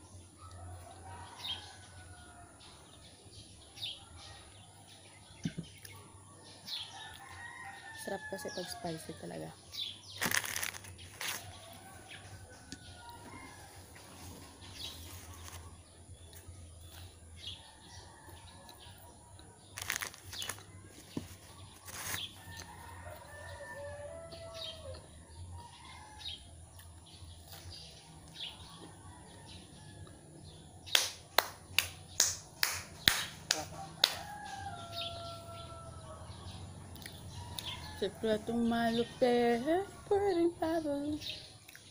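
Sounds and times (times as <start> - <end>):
sharp hand claps: 30.9 - 34.3.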